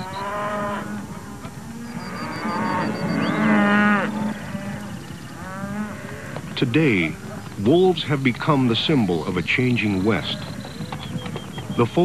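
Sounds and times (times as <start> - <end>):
cattle mooing: 0.0 - 7.4.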